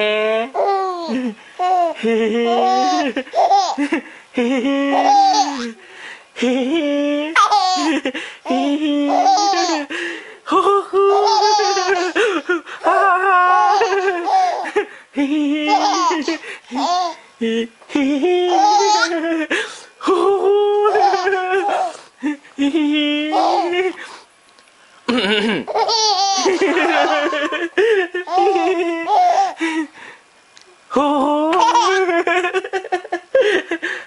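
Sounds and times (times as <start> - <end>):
baby laughing: 0.6 - 4.0, 4.8 - 5.8, 7.4 - 9.9, 11.0 - 14.8, 15.6 - 17.2, 18.5 - 19.4, 20.8 - 22.0, 23.3 - 24.0, 25.4 - 29.7, 31.5 - 33.2.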